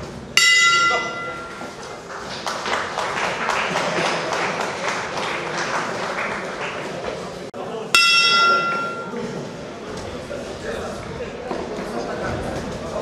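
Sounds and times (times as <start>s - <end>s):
crowd noise: 0.0s - 13.0s
boxing bell ringing: 0.4s - 1.8s, 8.0s - 9.2s.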